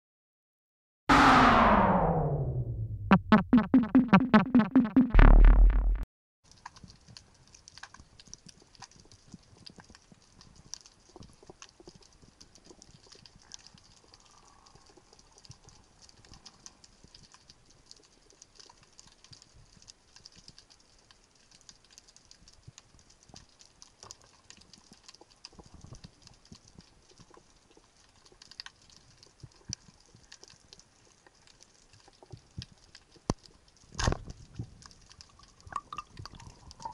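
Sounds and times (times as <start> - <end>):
intro music with deep drums: 1.1 - 6.0
low underwater knocks: 3.1 - 6.0
underwater crackle of clicks: 6.5 - 36.9.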